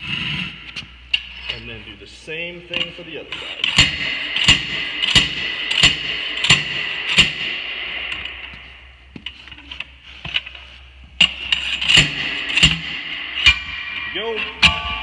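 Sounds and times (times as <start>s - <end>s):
sharp metallic hammer strikes: 3.7s - 8.9s, 11.9s - 15.0s.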